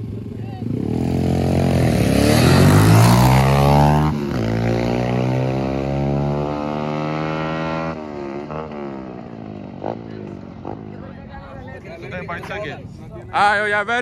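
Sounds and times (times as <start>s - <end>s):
dirt bikes accelerating hard: 0.0s - 11.0s.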